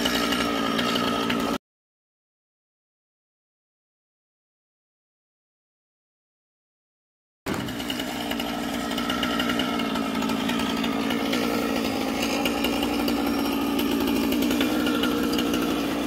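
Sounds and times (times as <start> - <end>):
chainsaw engine running: 0.0 - 1.6, 7.5 - 16.0.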